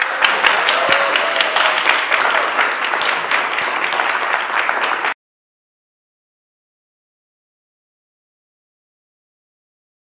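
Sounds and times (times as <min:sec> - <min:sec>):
audience applauding: 0:00.0 - 0:05.2.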